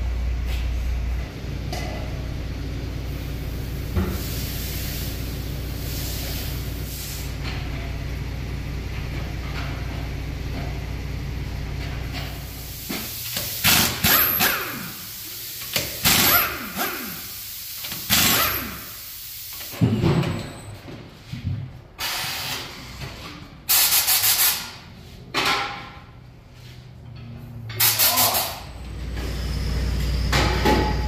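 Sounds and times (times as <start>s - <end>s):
low machine hum: 0.0s - 4.1s, 5.0s - 12.6s
pneumatic impact wrench bursts: 12.4s - 19.8s, 22.0s - 23.0s, 23.7s - 24.8s, 27.7s - 28.7s.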